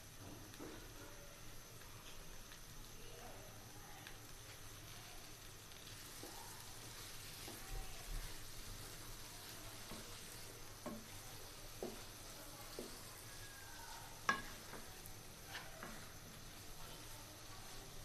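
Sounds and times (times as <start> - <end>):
onions sizzling in a pan: 0.0 - 18.0
spatula knocking against pan: 14.2 - 14.9.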